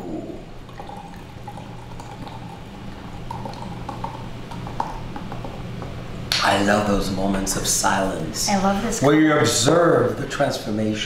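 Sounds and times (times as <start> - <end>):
sparkling wine pouring and fizzing: 0.5 - 5.6
bubbles bursting ticks: 0.6 - 5.9.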